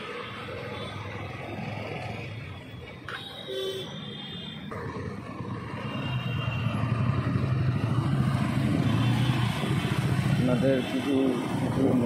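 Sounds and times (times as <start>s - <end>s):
traffic noise: 0.0s - 12.0s.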